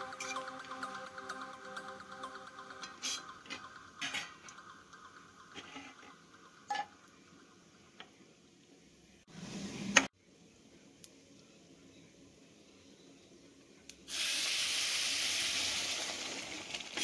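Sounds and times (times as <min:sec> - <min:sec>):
spices frying in oil: 0:14.1 - 0:17.0.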